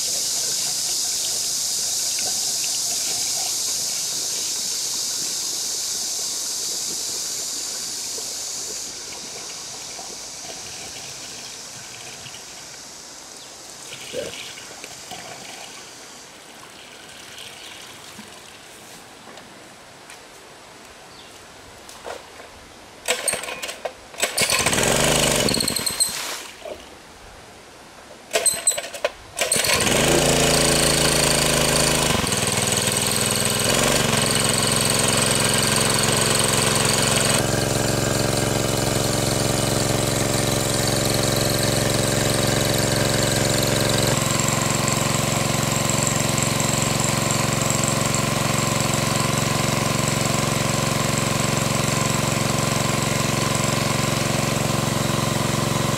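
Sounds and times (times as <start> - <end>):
water gushing from hose: 0.0 - 18.7, 24.2 - 26.7, 29.4 - 55.9
small petrol engine running: 23.1 - 26.1, 28.3 - 55.9.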